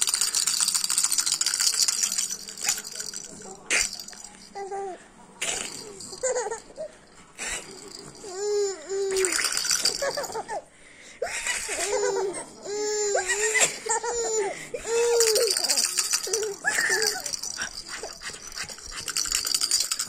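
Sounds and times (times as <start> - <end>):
rattling: 0.0 - 4.6, 15.0 - 20.0
baby giggling and squealing: 4.6 - 10.6, 11.2 - 20.0.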